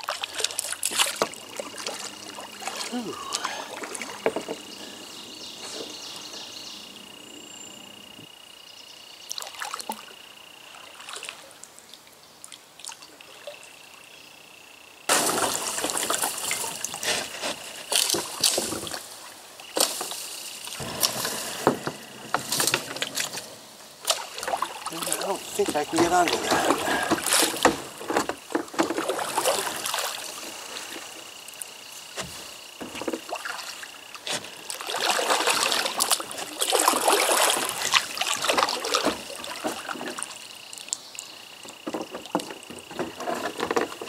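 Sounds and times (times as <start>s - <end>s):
kayak paddle splashing in water: 0.0s - 4.7s, 15.1s - 41.0s
water trickling and sloshing: 0.0s - 6.3s, 9.3s - 13.8s, 15.1s - 44.0s.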